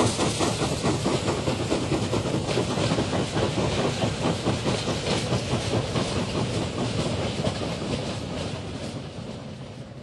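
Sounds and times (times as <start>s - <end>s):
wheels clattering on rails: 0.0s - 9.8s
steam locomotive exhaust beat: 0.0s - 10.0s.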